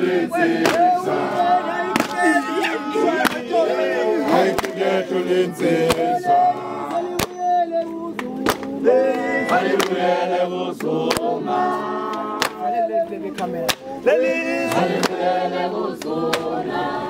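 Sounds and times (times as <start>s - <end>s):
men chanting in harmony: 0.0s - 17.0s
sharp handclaps: 0.6s - 1.0s, 2.0s - 2.3s, 3.2s - 3.5s, 4.5s - 4.8s, 7.1s - 7.4s, 8.1s - 10.0s, 10.8s - 11.3s, 12.1s - 12.7s, 13.3s - 13.9s, 14.7s - 15.2s, 16.0s - 16.6s.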